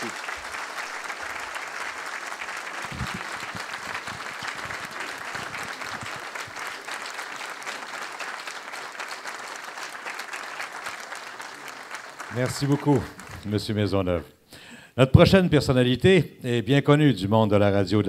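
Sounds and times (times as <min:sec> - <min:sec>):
audience applauding: 0:00.0 - 0:13.9.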